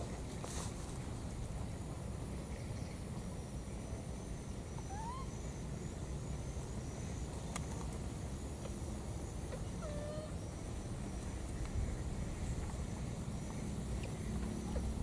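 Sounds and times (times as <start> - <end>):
steady low rumble: 0.0 - 15.0
baby monkey squeaky calls: 4.9 - 5.3.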